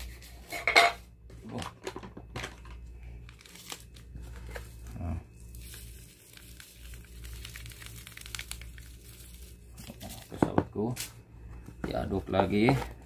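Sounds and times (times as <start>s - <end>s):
plastic sachet crinkling and tearing: 3.2s - 4.2s, 5.0s - 10.3s
powder pouring hiss: 5.4s - 10.3s.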